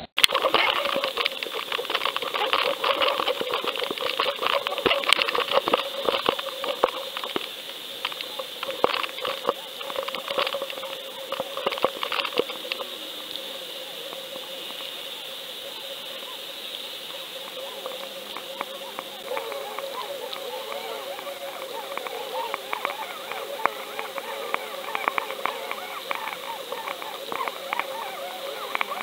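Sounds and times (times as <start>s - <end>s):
clicks and crackles underwater: 0.0s - 29.0s
steady hum: 0.0s - 29.0s.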